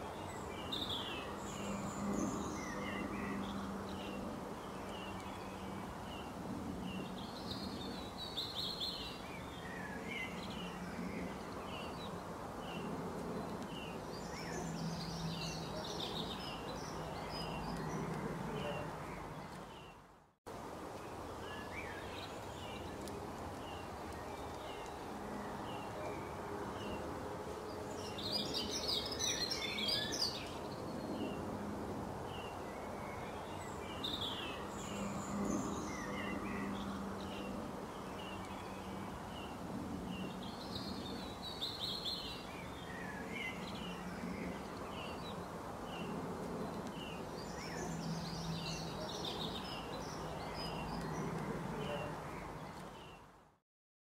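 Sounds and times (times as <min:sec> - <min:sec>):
birds chirping and singing: 0:06.9 - 0:20.0, 0:27.7 - 0:31.4.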